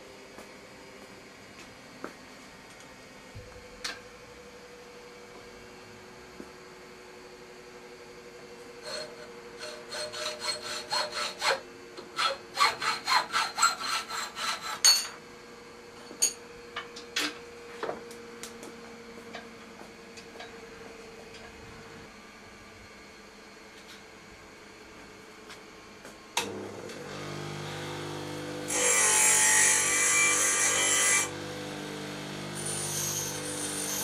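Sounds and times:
hacksaw cutting steel pipe: 0:08.8 - 0:15.2, 0:28.7 - 0:31.4, 0:32.6 - 0:34.0.

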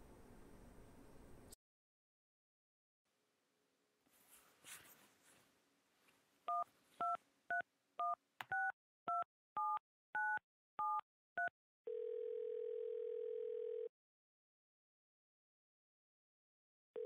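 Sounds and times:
keypad dialing beeps: 0:06.5 - 0:12.0
phone ringing tone: 0:11.9 - 0:13.9.

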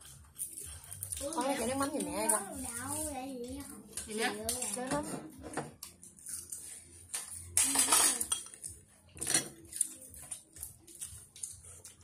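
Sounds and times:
chopsticks clinking on bowls: 0:05.8 - 0:12.0.

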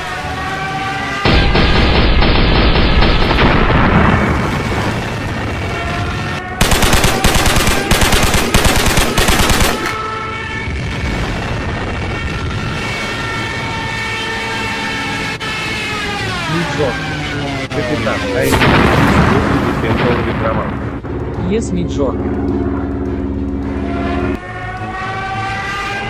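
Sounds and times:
explosion rumble: 0:01.2 - 0:05.8, 0:18.5 - 0:21.1
machine-gun fire: 0:06.6 - 0:10.0
fighter plane engine drone: 0:14.6 - 0:26.0.

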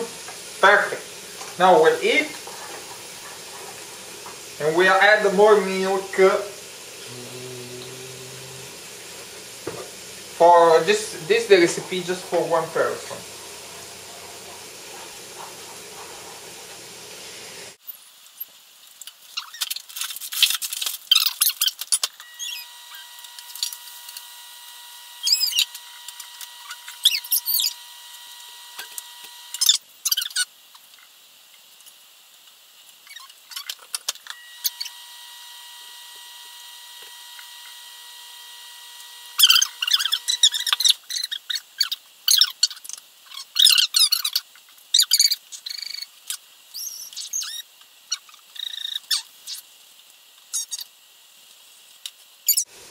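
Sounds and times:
milk sizzling in a saucepan: 0:00.0 - 0:52.9
faint steady whine: 0:34.3 - 0:40.9.

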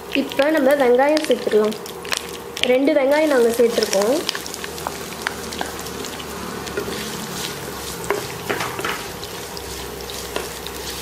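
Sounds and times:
onions sizzling in hot oil: 0:00.0 - 0:11.0
wooden spatula scraping pan: 0:06.7 - 0:11.0.

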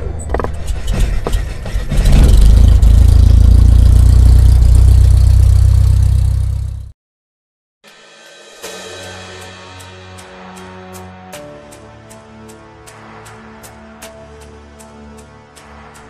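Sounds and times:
deep rumbling drone: 0:00.0 - 0:06.9.

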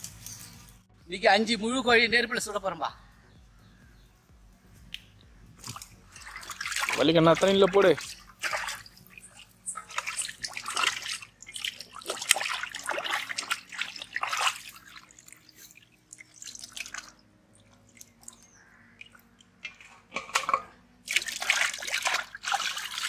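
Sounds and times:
water dripping: 0:04.9 - 0:20.5, 0:21.1 - 0:23.0
water splashing: 0:05.6 - 0:23.0.

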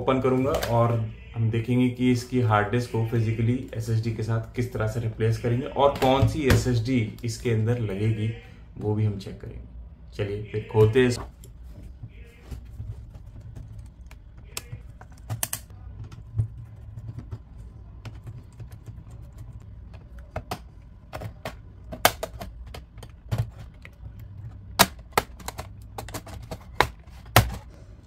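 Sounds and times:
plastic clips clicking and snapping: 0:13.9 - 0:15.7, 0:20.2 - 0:27.6.

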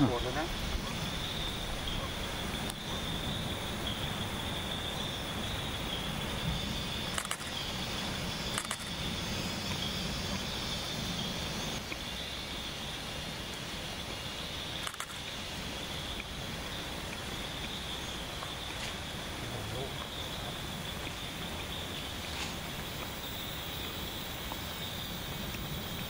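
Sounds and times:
camera shutter clicking: 0:07.1 - 0:07.5, 0:08.5 - 0:08.9, 0:14.8 - 0:15.2.

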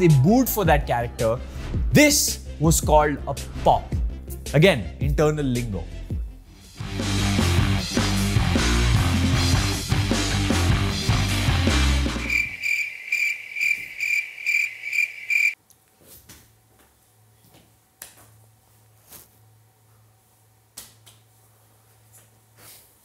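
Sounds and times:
crickets chirping: 0:12.2 - 0:15.6.

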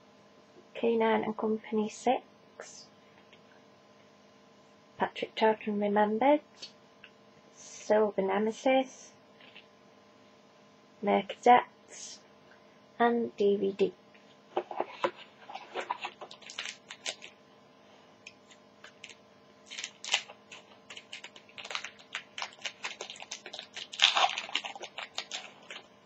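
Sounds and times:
card pack wrapper crinkling: 0:14.7 - 0:17.4, 0:18.3 - 0:26.0.

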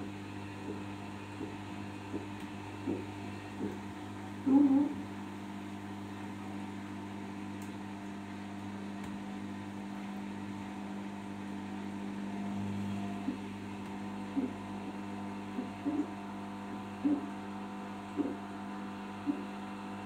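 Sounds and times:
washing machine motor hum: 0:00.0 - 0:20.0.

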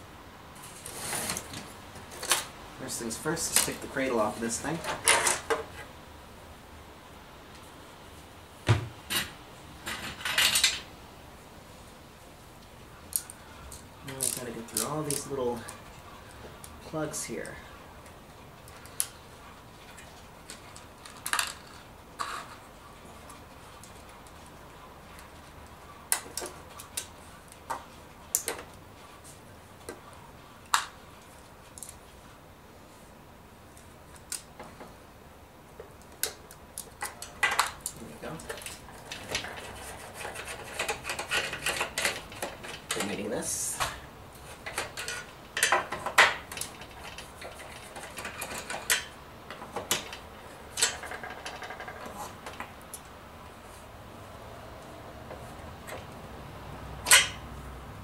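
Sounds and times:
hand tool clicking and scraping: 0:36.2 - 0:43.2, 0:44.4 - 0:53.1, 0:57.0 - 0:57.4.

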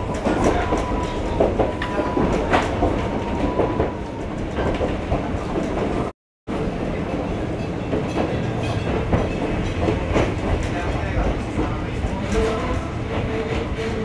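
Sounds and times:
train rumbling: 0:00.0 - 0:14.0
wheels clacking over rail joints: 0:07.2 - 0:14.0.

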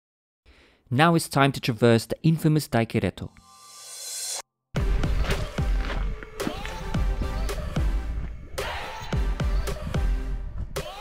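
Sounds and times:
held music tones: 0:04.8 - 0:10.6.

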